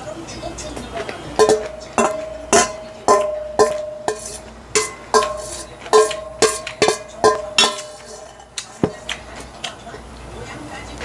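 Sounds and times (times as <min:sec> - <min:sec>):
metal spoon clinking steel bowl: 0:01.4 - 0:09.8.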